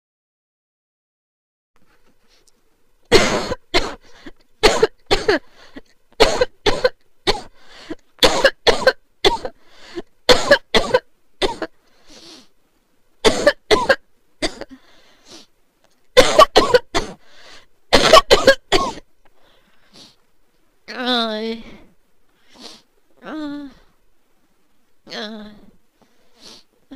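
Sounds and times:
person coughing hard: 0:03.1 - 0:05.4, 0:06.2 - 0:07.5, 0:08.2 - 0:09.6, 0:10.3 - 0:11.8, 0:13.2 - 0:14.8, 0:16.2 - 0:17.2, 0:17.9 - 0:19.1.

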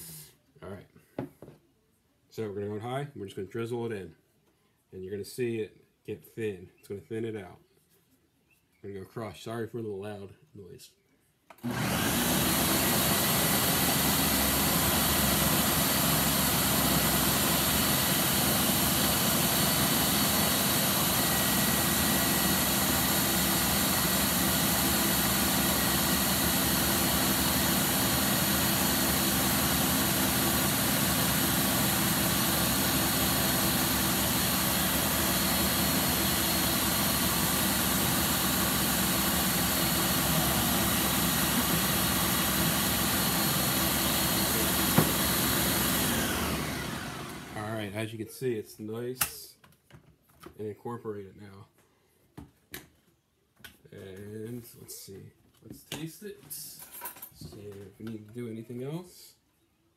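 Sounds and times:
blender motor whining: 0:11.6 - 0:47.7.

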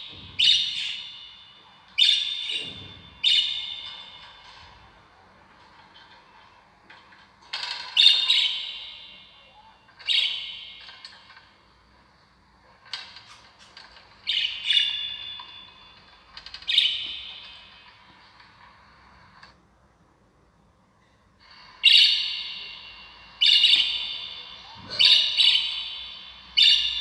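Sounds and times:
bird calling: 0:21.4 - 0:27.0.

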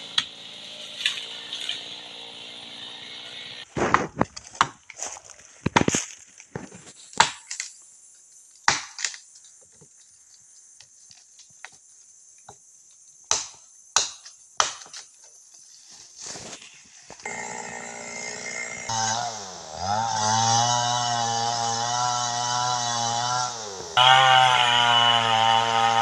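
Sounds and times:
insect drone: 0:00.0 - 0:04.2
wood chopping knocks: 0:03.8 - 0:04.8, 0:08.7 - 0:09.2, 0:13.3 - 0:15.0.

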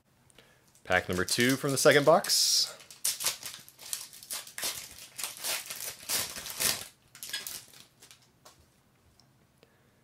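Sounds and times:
foil wrapper crinkling and tearing: 0:00.9 - 0:08.3.

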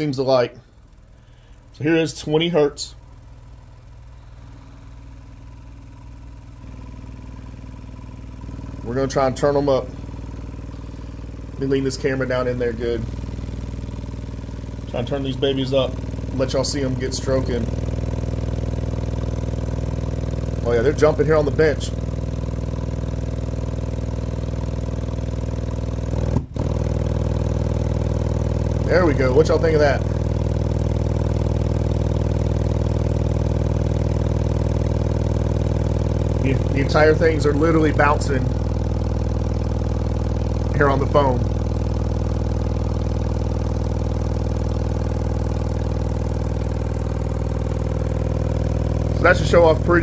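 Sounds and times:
subwoofer low drone: 0:00.0 - 0:50.0.

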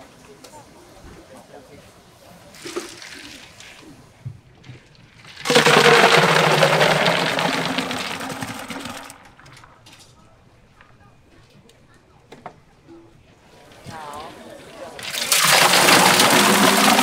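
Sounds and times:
liquid pouring with ice splashing: 0:02.5 - 0:03.9, 0:04.9 - 0:09.2, 0:15.0 - 0:17.0.

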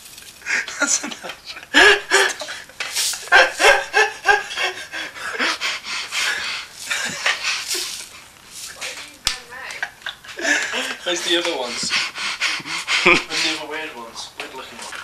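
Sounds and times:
breathy laughter: 0:00.4 - 0:08.0, 0:09.8 - 0:13.6
person panting: 0:01.8 - 0:02.8, 0:03.8 - 0:08.8, 0:10.3 - 0:13.7.

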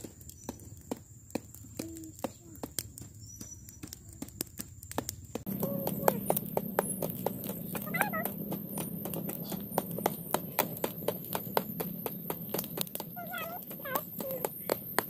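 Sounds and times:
pestle pounding in clay mortar: 0:00.0 - 0:15.0
child's voice: 0:01.7 - 0:02.8, 0:05.5 - 0:06.4, 0:07.8 - 0:08.4, 0:13.2 - 0:14.6.

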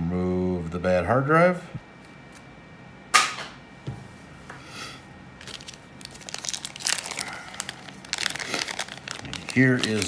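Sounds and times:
plastic bag crinkling: 0:05.4 - 0:10.0.

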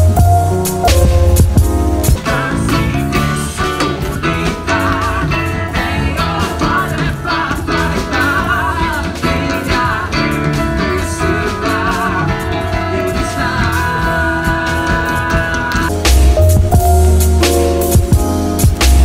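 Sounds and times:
drums: 0:00.0 - 0:19.0
electric guitar: 0:00.0 - 0:19.0
man singing with vibrato: 0:02.0 - 0:16.0.

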